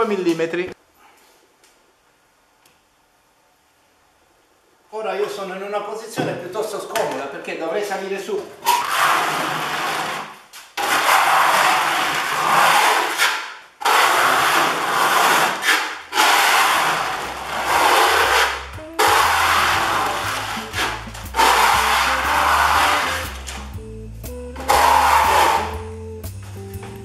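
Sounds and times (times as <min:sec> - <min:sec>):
steel trowel scraping resin: 0:10.8 - 0:23.5, 0:24.6 - 0:25.8
background music: 0:17.2 - 0:27.0.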